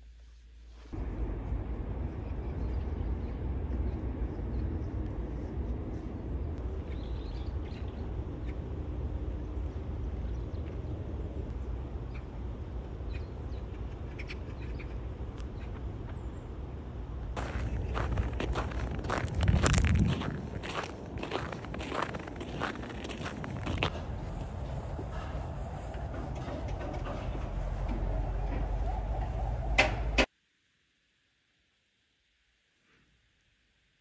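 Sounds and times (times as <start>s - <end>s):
low outdoor rumble: 0.0s - 30.3s
footsteps crunching on snow: 17.4s - 25.9s.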